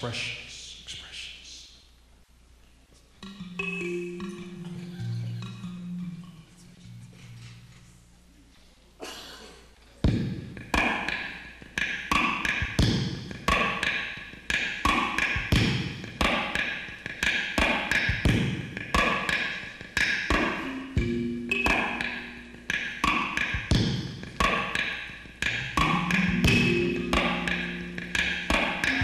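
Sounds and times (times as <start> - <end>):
taps on kalimba body: 10.1 - 29.0.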